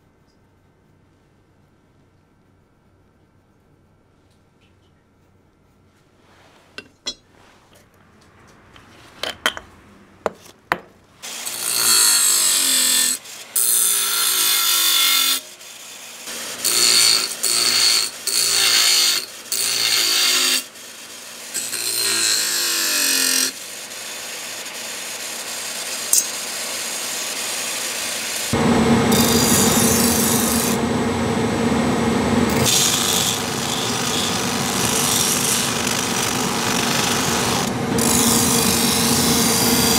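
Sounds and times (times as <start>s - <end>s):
steady motor hum: 28.5s - 39.9s
knife grinding on wheel: 32.5s - 39.9s.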